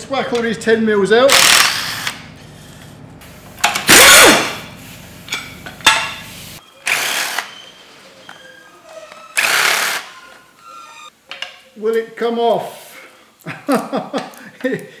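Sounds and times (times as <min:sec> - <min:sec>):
cordless drill bursts: 0:01.3 - 0:02.2, 0:06.8 - 0:07.5, 0:09.4 - 0:10.1.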